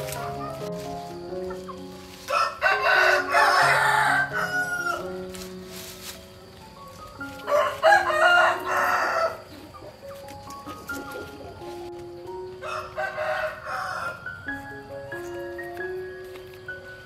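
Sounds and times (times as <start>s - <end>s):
soft music with held notes: 0.0s - 17.0s
rooster crowing: 2.3s - 5.1s, 7.5s - 9.5s, 12.6s - 14.4s.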